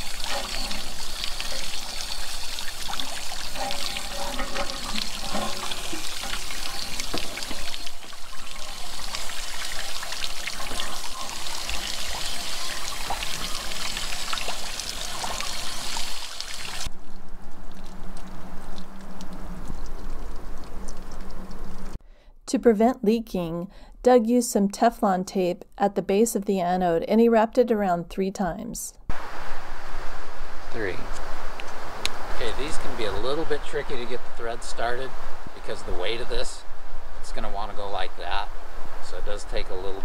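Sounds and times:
water pouring and splashing: 0.0 - 22.0.

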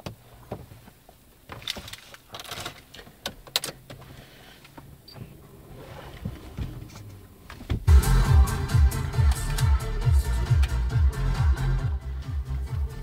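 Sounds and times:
ignition key clicks and rustles: 1.5 - 4.1.

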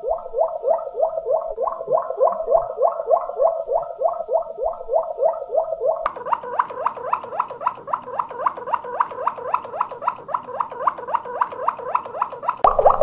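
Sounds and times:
canary singing: 0.0 - 12.8.

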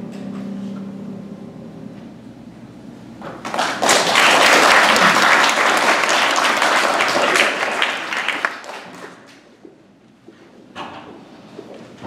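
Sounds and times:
audience applause: 3.4 - 9.4.

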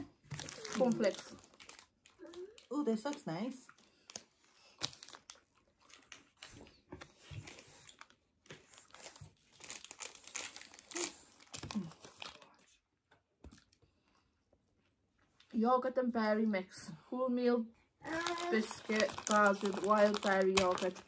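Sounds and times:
plastic wrapper crinkling: 0.0 - 12.6, 18.0 - 21.0.

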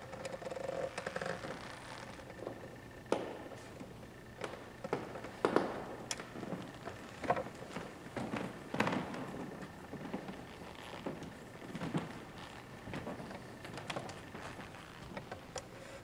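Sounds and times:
footsteps on hard floor: 1.6 - 15.5.

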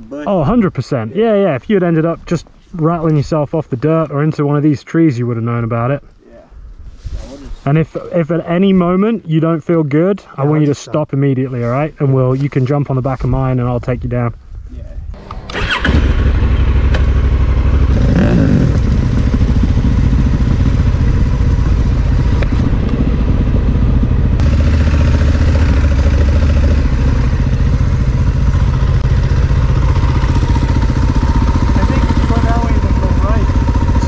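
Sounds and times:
motorcycle engine running: 15.2 - 34.0.

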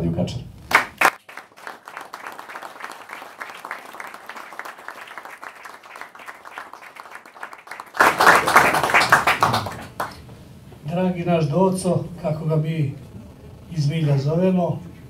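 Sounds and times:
audience applauding: 0.7 - 10.3.

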